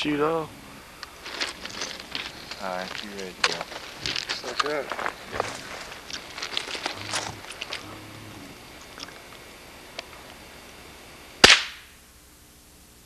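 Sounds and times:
faint clicks: 1.0s - 10.4s
shotgun shot: 11.4s - 11.9s.

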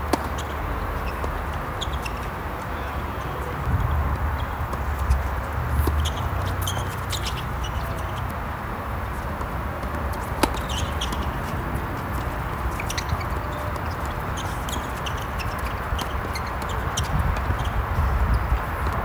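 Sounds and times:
tennis balls struck by racquets: 0.0s - 17.8s
steady background noise: 0.0s - 19.0s.

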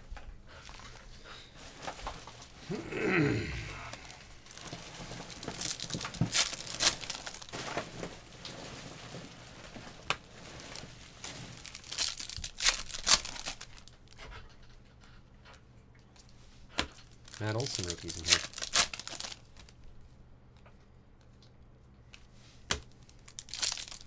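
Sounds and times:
wrappers tearing and crinkling: 1.6s - 14.2s, 16.9s - 19.8s, 22.8s - 24.0s.

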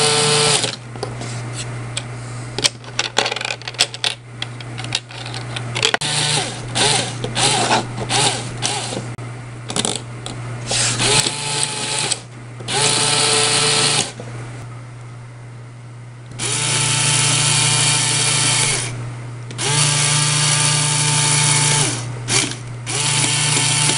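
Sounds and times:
small electric motor whirring: 0.0s - 0.7s, 6.0s - 9.0s, 10.7s - 14.2s, 16.4s - 23.9s.

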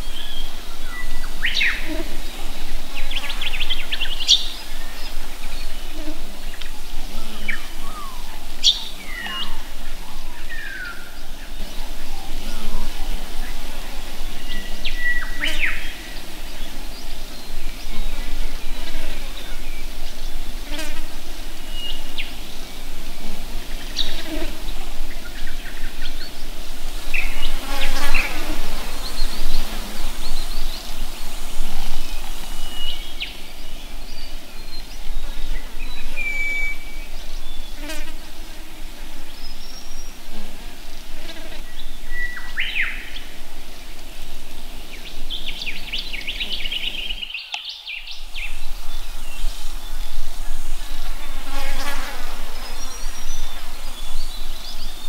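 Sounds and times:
insects buzzing: 0.0s - 55.0s
bird chirps and calls: 7.2s - 9.7s.

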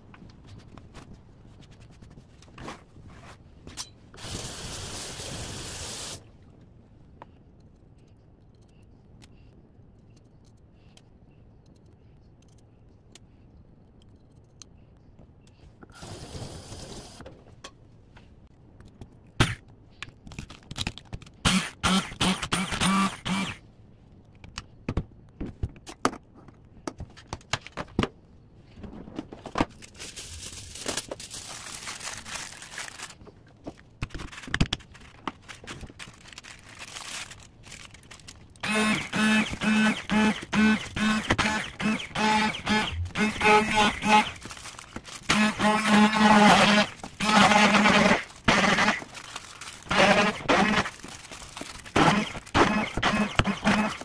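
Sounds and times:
hand blender motor whirring: 21.5s - 23.6s, 38.6s - 44.5s, 45.3s - 49.1s, 49.8s - 51.0s, 51.8s - 54.0s.

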